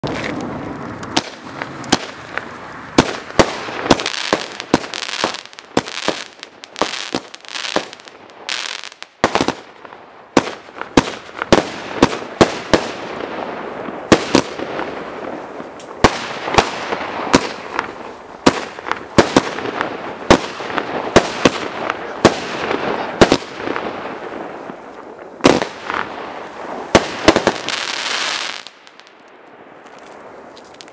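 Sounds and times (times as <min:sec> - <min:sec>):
firework bangs: 0:00.0 - 0:30.9
firework crackling: 0:00.0 - 0:30.9.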